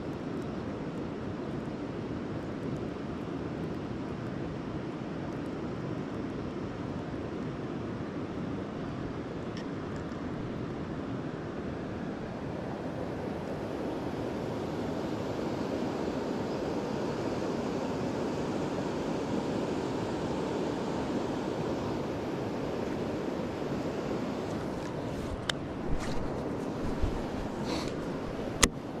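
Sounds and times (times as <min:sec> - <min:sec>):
steady outdoor rushing noise: 0:00.0 - 0:29.0.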